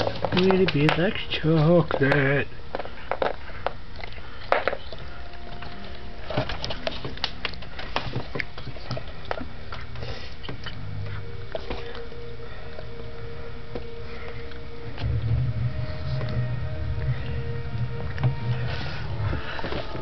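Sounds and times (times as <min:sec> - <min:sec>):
cat chewing and licking: 0:02.8 - 0:13.0.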